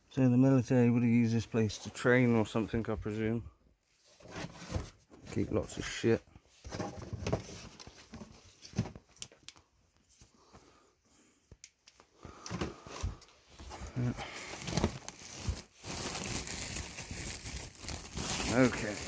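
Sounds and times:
bags and fabric rustling: 0:13.0 - 0:19.0.

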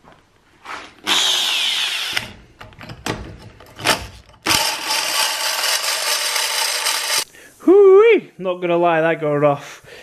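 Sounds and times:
power drill grinding metal: 0:01.0 - 0:02.3, 0:04.4 - 0:07.3.

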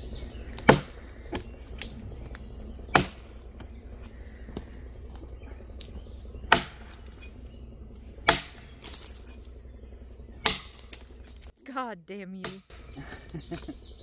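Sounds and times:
axe chopping log: 0:00.5 - 0:07.4, 0:08.2 - 0:09.4, 0:10.4 - 0:11.5, 0:12.4 - 0:13.7.

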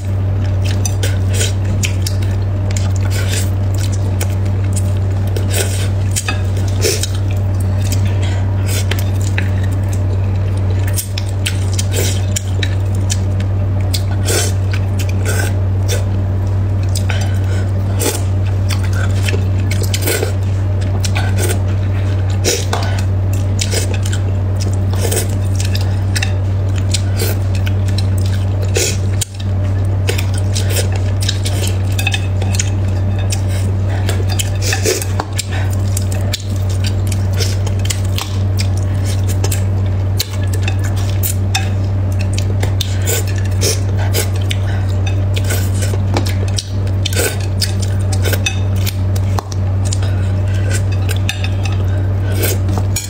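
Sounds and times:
low hum: 0:00.0 - 0:53.0
chewing: 0:00.1 - 0:53.0
chopsticks scraping a ceramic plate: 0:30.1 - 0:39.6, 0:42.6 - 0:53.0.

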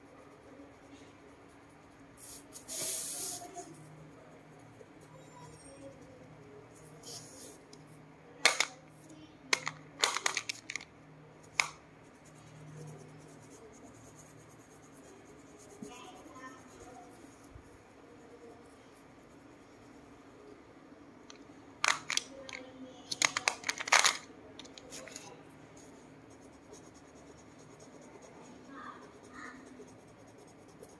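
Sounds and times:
crayon scratching on paper: 0:00.0 - 0:07.7, 0:11.4 - 0:20.4, 0:24.7 - 0:30.9
crayons picked up and set down: 0:08.4 - 0:08.8, 0:09.5 - 0:10.9, 0:21.8 - 0:25.3.

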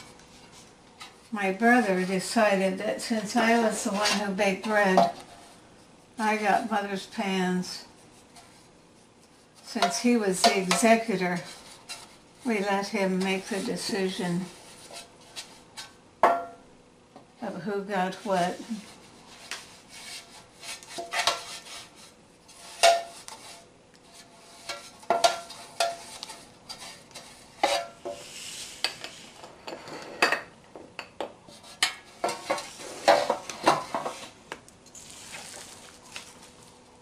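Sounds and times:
metal pans clanking and scraping: 0:03.4 - 0:05.4, 0:20.0 - 0:23.6, 0:24.2 - 0:34.4.

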